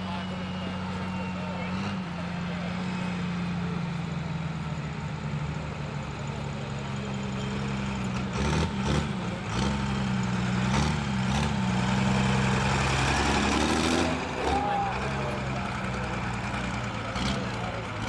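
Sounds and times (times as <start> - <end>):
diesel truck engine revving: 0.0 - 18.0.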